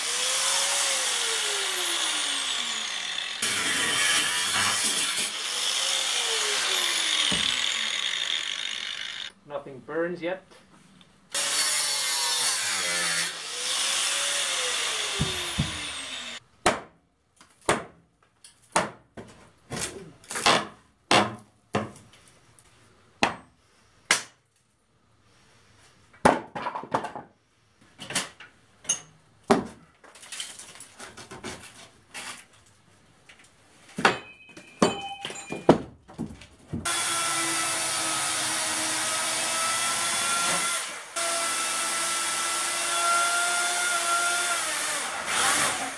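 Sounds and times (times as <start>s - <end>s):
cordless power tool running: 0.0s - 9.3s, 12.8s - 16.4s, 36.9s - 45.9s
angle grinder cutting metal: 0.0s - 9.4s, 11.3s - 16.4s, 36.9s - 45.9s
knocks on wood: 15.2s - 15.9s.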